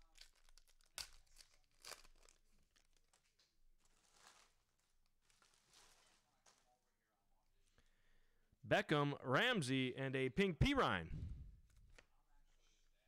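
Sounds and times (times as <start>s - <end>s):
wrapper and cards rustling: 0.0s - 6.8s.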